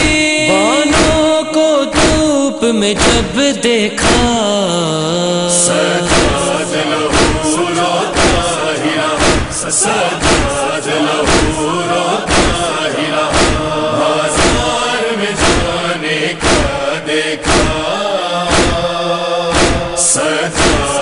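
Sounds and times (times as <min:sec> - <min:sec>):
voices chanting a lament: 0:00.0 - 0:21.0
steady thump: 0:06.1 - 0:08.6, 0:09.2 - 0:18.9, 0:19.5 - 0:21.0.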